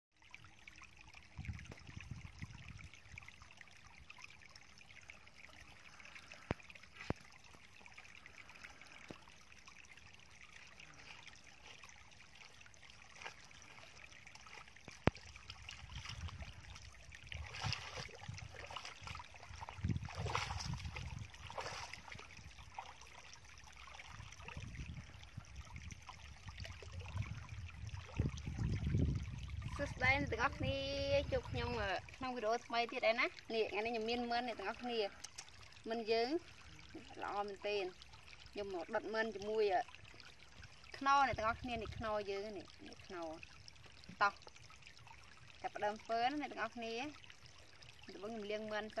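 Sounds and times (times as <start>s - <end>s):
stream water trickling: 0.1s - 49.0s
footsteps splashing through mud: 14.4s - 22.9s.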